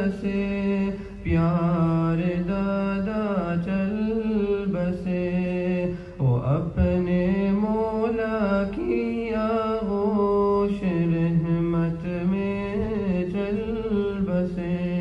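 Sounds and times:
man singing: 0.0s - 15.0s.

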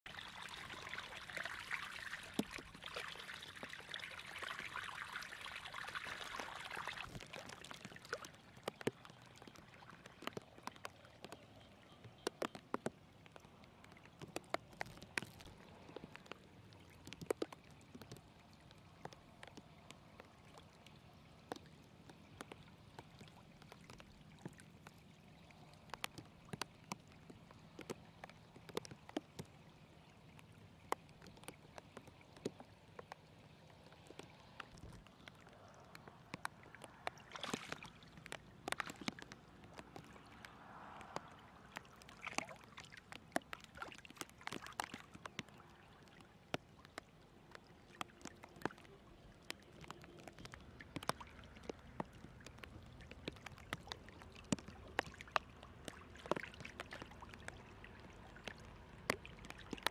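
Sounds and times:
water trickling over mud: 0.0s - 59.9s
muddy water pouring and splashing: 0.1s - 59.9s
sharp ticks and small splashes: 0.1s - 59.9s.

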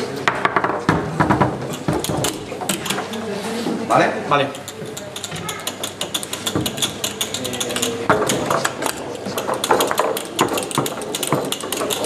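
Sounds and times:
foosball clicks and knocks: 0.3s - 3.2s, 4.6s - 12.0s.

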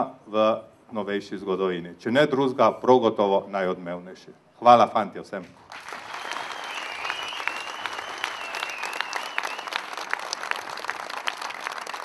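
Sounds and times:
audience applauding: 5.7s - 12.0s
high wavering whistle: 6.2s - 9.9s.

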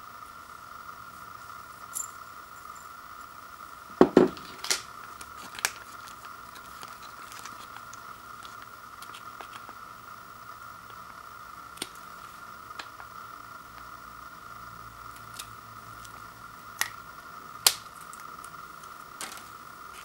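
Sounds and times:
faint high whine: 0.0s - 20.0s
ceramic bowl knocking on wooden floor: 4.0s - 4.4s
plastic packet crinkling and tearing: 4.4s - 9.8s.

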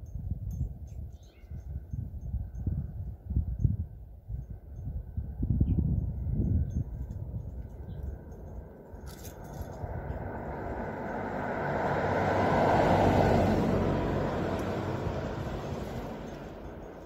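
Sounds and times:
vehicle passing by: 9.2s - 17.0s.

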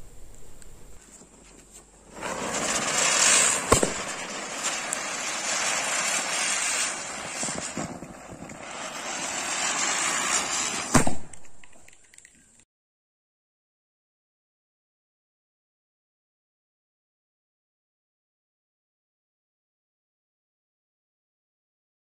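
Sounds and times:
spinning firecrackers hissing: 0.0s - 12.6s
firecracker bang: 2.1s - 11.9s
sharp crack: 2.2s - 12.4s.

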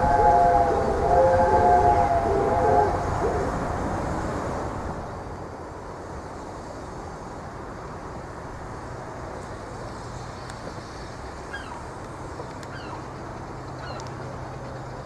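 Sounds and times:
steam whistle: 0.0s - 3.6s
locomotive rumble and hiss: 0.0s - 15.0s.

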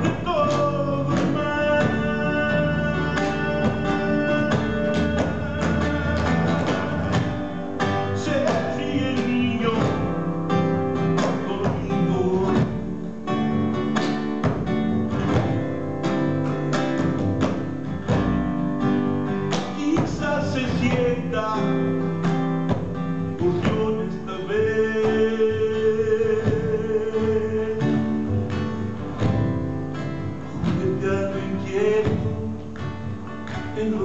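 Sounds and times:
wordless singing: 0.0s - 13.0s, 19.6s - 22.2s, 23.2s - 28.7s, 30.4s - 34.0s
classical guitar fingerstyle: 0.0s - 34.0s.

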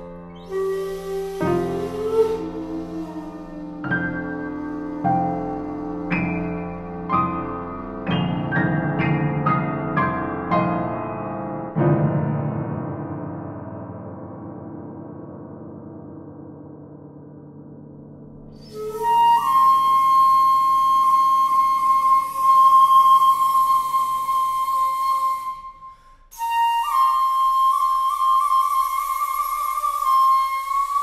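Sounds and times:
shakuhachi long notes: 0.0s - 9.6s, 18.5s - 31.0s
piano chord: 0.0s - 19.2s.

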